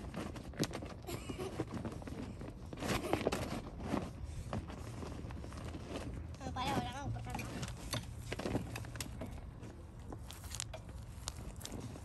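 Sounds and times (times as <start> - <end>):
plastic ball crinkling: 9.9 - 12.0.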